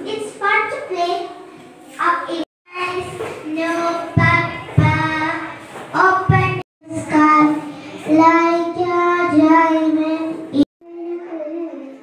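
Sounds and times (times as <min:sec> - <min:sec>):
girl singing into microphone: 0:02.7 - 0:12.0.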